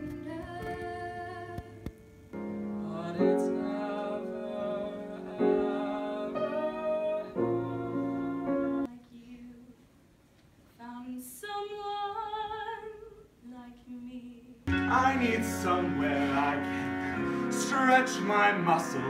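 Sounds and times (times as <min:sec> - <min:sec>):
piano playing held chords: 0:00.0 - 0:08.9, 0:14.7 - 0:19.0.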